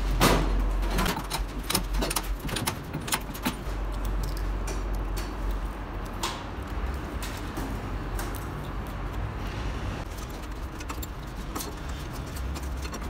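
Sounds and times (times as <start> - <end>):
small metal parts clinking: 0.8 - 5.0.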